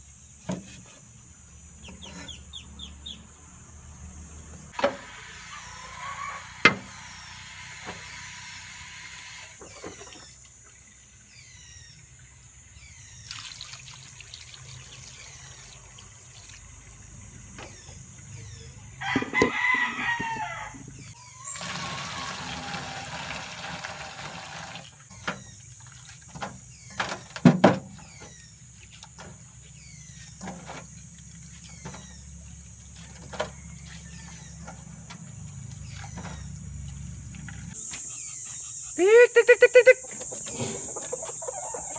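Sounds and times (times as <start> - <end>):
small birds chirping: 0.1 - 4.8, 9.6 - 19.0, 25.1 - 41.9
rooster crowing: 5.4 - 7.2, 19.0 - 21.5
water poured into metal wok: 13.3 - 16.7.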